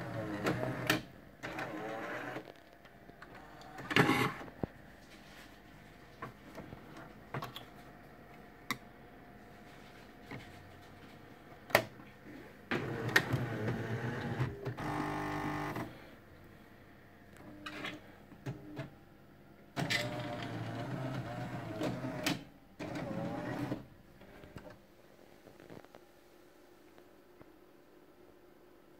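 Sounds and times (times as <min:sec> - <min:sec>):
coffee machine motor and pump: 0:12.3 - 0:15.9.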